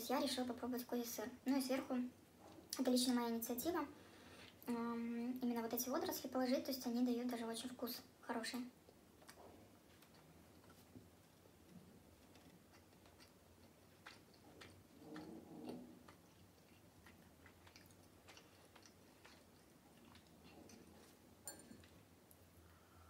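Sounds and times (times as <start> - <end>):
faint chewing: 8.8 - 22.8.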